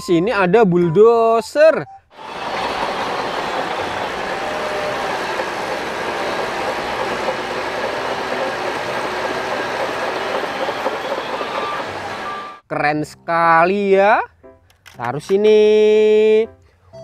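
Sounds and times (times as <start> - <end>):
bulldozer engine and tracks: 2.2 - 12.6.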